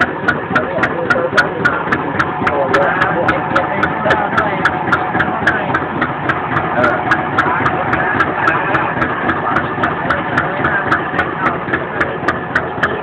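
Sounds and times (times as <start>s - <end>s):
boat engine running: 0.0s - 13.0s
regular engine clacking: 0.0s - 13.0s.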